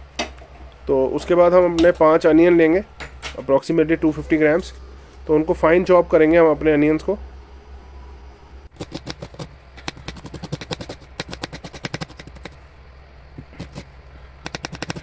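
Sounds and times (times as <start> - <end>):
knife chopping on plastic board: 8.8 - 12.6, 14.4 - 15.0.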